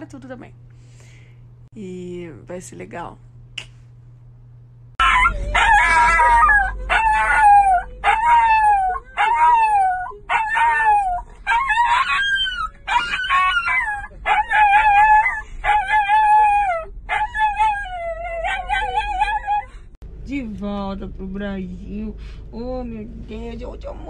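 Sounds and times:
small dog howling: 0:05.0 - 0:19.6.

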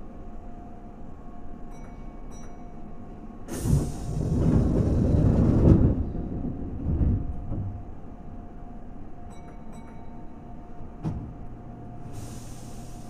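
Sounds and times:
electric train rumbling: 0:00.0 - 0:13.0
loud hiss: 0:12.1 - 0:13.0.

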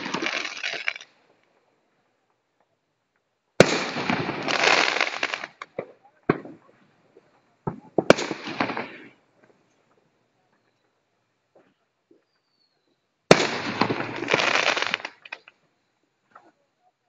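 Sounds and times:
firework crackling: 0:00.0 - 0:01.1, 0:03.6 - 0:05.7, 0:08.0 - 0:09.1, 0:13.3 - 0:15.5
firework shells bursting: 0:00.0 - 0:01.1, 0:13.3 - 0:15.5.

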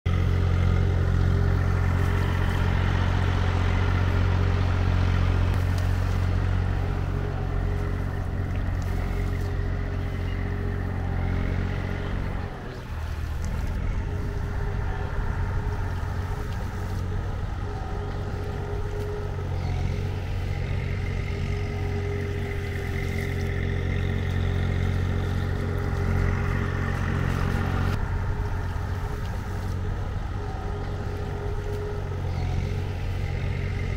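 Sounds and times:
engine running steadily: 0:00.1 - 0:33.9.

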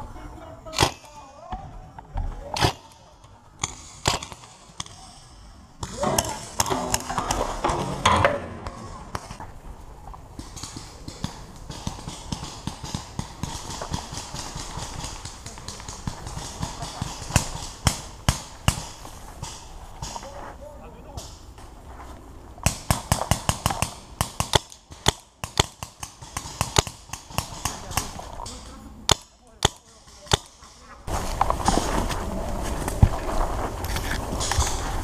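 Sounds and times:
paintball gun shots: 0:00.7 - 0:01.2, 0:02.5 - 0:05.1, 0:10.4 - 0:20.2, 0:22.6 - 0:30.7
running footsteps in undergrowth: 0:31.0 - 0:35.0.

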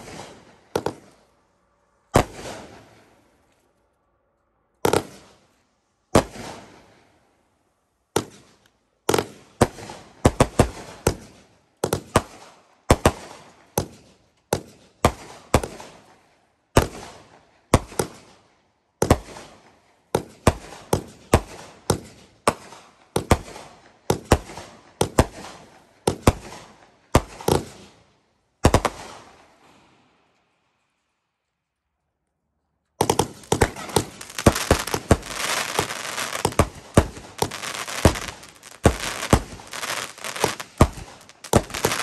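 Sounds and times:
firework bangs with echo: 0:02.1 - 0:03.1, 0:33.0 - 0:42.0.

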